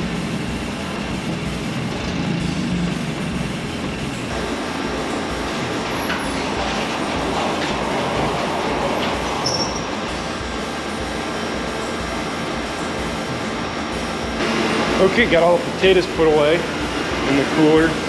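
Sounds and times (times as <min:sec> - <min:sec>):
sliding door rumbling on track: 0:00.0 - 0:14.6
short high squeal: 0:09.4 - 0:10.0.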